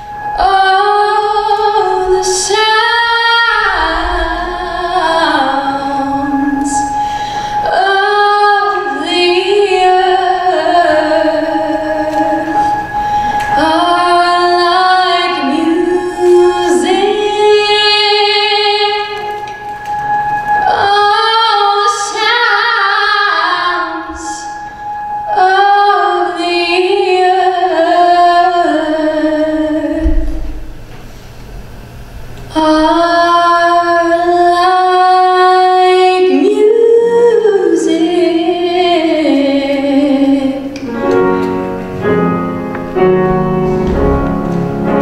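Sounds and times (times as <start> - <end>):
woman singing into a microphone: 0.0 - 19.6, 20.5 - 30.5, 32.5 - 40.9
breaths: 6.9 - 7.7, 12.6 - 13.6.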